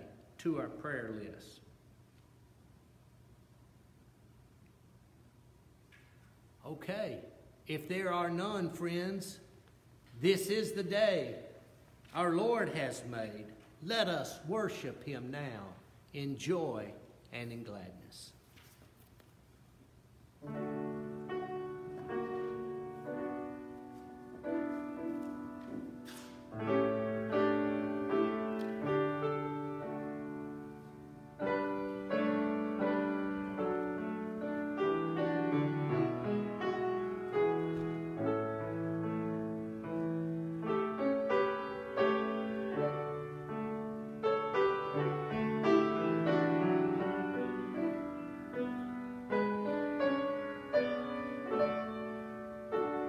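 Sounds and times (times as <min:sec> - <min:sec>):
slow piano music: 0:20.4 - 0:53.0.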